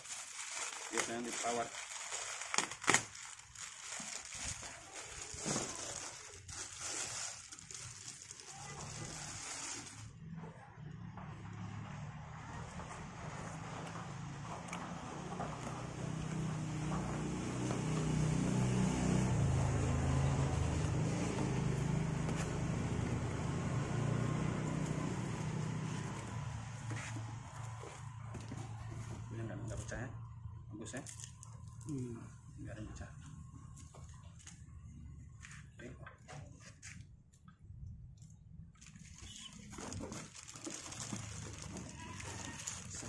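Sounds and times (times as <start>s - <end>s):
cardboard packaging moved: 0.0s - 10.1s, 38.8s - 43.0s
plastic bag crinkling: 0.0s - 10.1s, 38.8s - 43.0s
engine humming: 7.4s - 35.6s.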